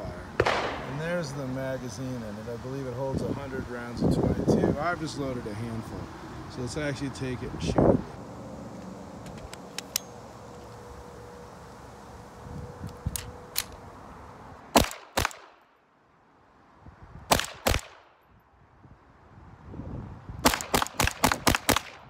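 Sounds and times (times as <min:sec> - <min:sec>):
pistol clicks: 0:00.4 - 0:00.9, 0:13.1 - 0:13.8
pistol shots: 0:00.4 - 0:01.1, 0:14.7 - 0:15.6, 0:17.3 - 0:18.1, 0:20.4 - 0:22.0.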